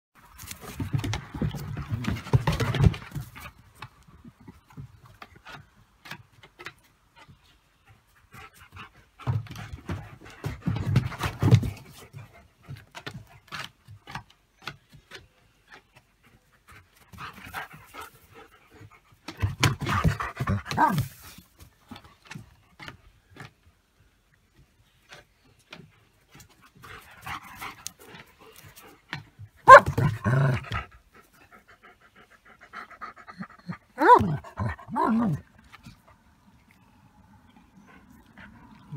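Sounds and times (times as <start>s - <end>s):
dogs panting: 15.2s - 21.2s, 25.1s - 38.9s.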